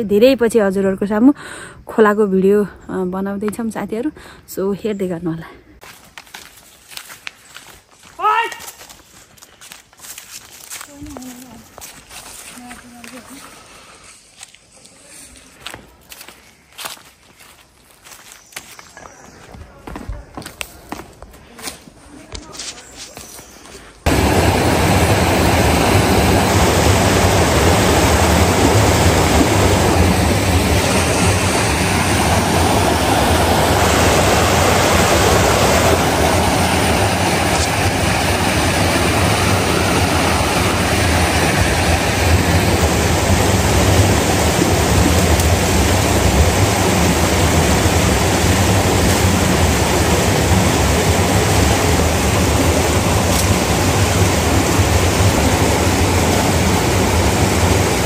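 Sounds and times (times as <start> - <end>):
mountain stream rushing: 24.0 - 58.0.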